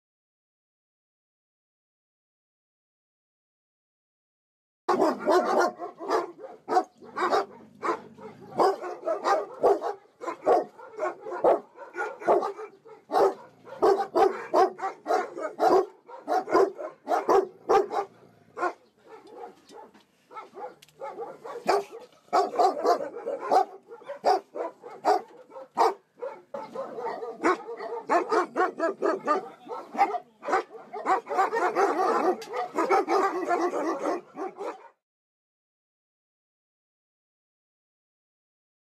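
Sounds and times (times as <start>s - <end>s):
dogs barking: 4.9s - 35.0s.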